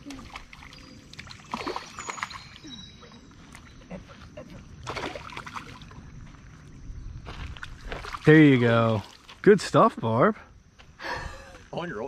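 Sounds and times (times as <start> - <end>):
fish splashing in water: 0.0 - 2.7, 4.8 - 6.0.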